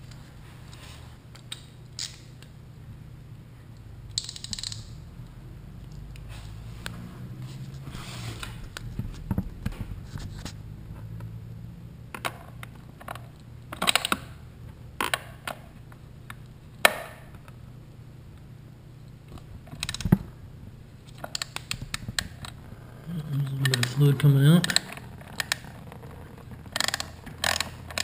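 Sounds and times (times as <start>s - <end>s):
low steady hum: 0.0s - 28.0s
socket ratchet clicking: 26.8s - 28.0s.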